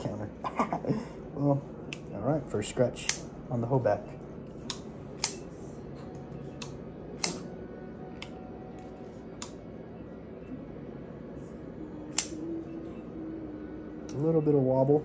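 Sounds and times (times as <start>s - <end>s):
folding knife blade clicking: 6.6s - 7.5s, 12.1s - 12.4s.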